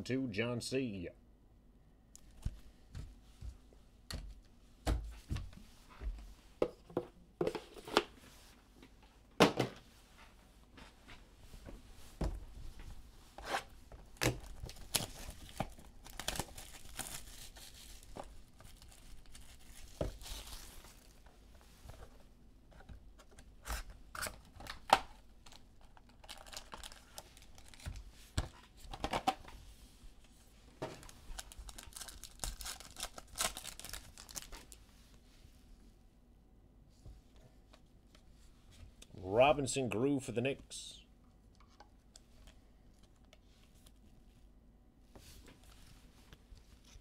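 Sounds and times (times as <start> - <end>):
card wrappers tearing and crinkling: 14.3 - 21.2, 25.5 - 28.0, 31.0 - 34.8.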